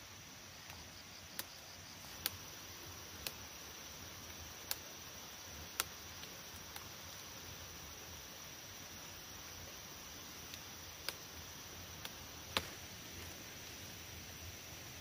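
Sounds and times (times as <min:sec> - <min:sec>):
faint steady hiss: 0:00.0 - 0:15.0
flower stalks snapping: 0:02.1 - 0:02.4, 0:12.0 - 0:12.9.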